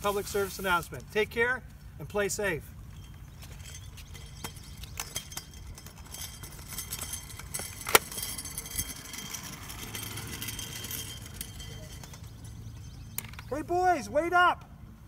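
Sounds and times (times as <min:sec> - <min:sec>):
protective gear clicks and rattles: 0:02.9 - 0:13.5.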